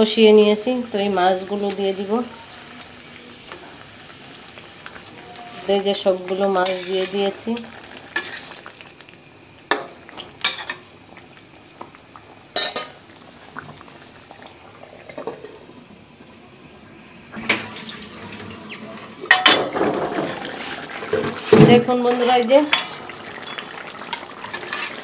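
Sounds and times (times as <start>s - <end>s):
curry bubbling and sizzling: 0.0s - 25.0s
metal spoon scraping a pan: 6.5s - 7.4s, 8.1s - 8.7s, 22.1s - 25.0s.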